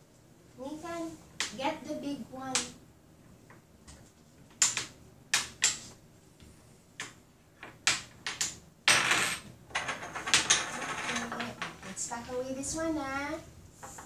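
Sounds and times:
hard pieces clicking on table: 0:03.9 - 0:05.9, 0:07.0 - 0:11.9
pieces clattering: 0:07.6 - 0:12.0.

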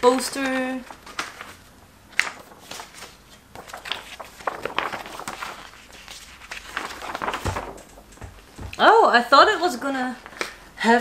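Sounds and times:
paper rustling and crinkling: 0:00.0 - 0:08.8.

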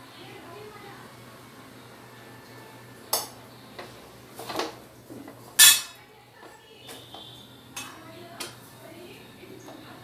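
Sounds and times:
metal spatula clinking cookware: 0:05.6 - 0:06.0.

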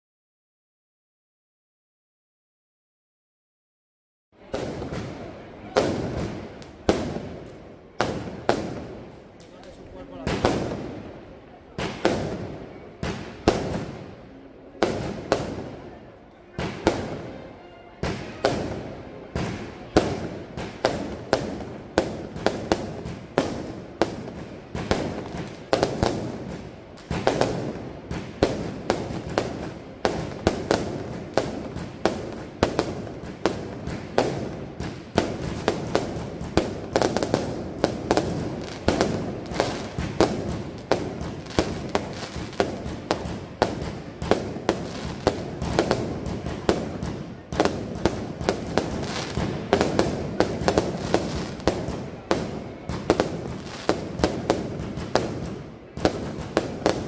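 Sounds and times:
fireworks bangs: 0:04.4 - 0:57.0
fireworks crackling: 0:04.4 - 0:57.0.

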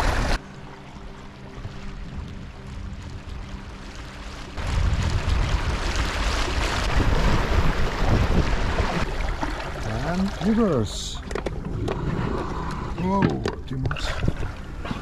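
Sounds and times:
water rushing and splashing: 0:00.0 - 0:15.0
wind buffeting microphone: 0:04.6 - 0:09.1.

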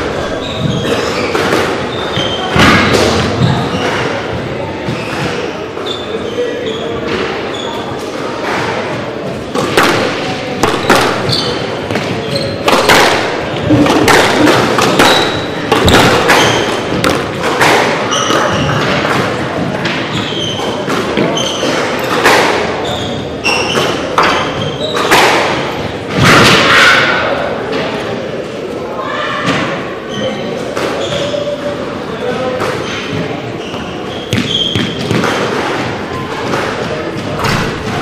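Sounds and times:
shoe squeaks on hardwood floor: 0:00.2 - 0:02.6, 0:03.2 - 0:08.1, 0:10.7 - 0:12.7, 0:14.9 - 0:17.0, 0:18.0 - 0:19.0, 0:20.0 - 0:22.1, 0:22.8 - 0:25.2, 0:30.0 - 0:31.7, 0:32.8 - 0:35.5
squash balls cracking off rackets: 0:09.5 - 0:20.0.

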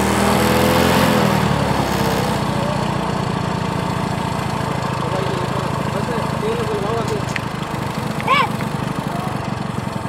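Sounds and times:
small motor chugging: 0:02.4 - 0:10.0.

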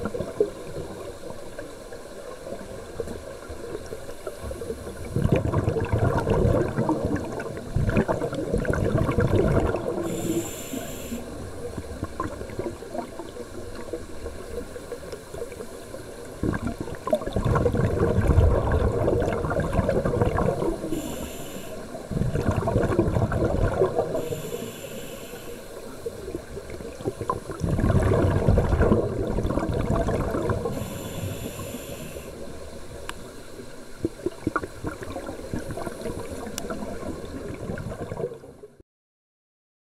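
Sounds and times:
exhaled bubbles gurgling: 0:00.0 - 0:38.8
regulator inhale hiss: 0:10.0 - 0:11.4, 0:20.8 - 0:22.1, 0:24.1 - 0:26.2, 0:30.6 - 0:32.5.

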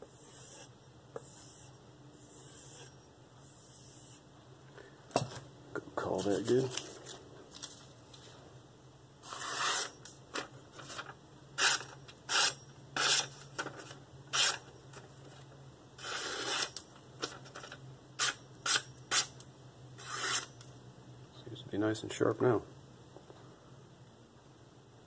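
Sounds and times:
paper rustling: 0:06.2 - 0:08.4, 0:10.4 - 0:11.2.

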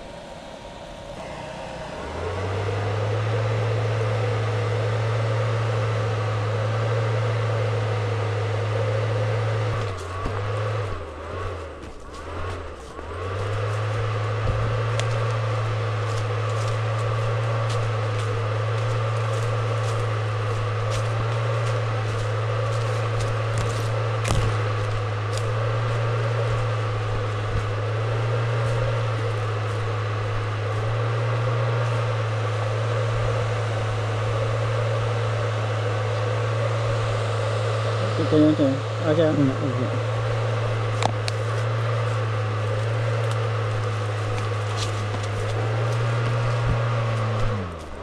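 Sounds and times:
ventilation fan humming: 0:00.0 - 0:48.0.

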